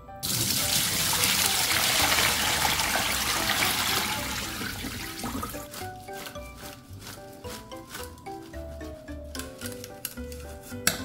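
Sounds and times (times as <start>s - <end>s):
water splashing through a colander: 0.2s - 8.1s.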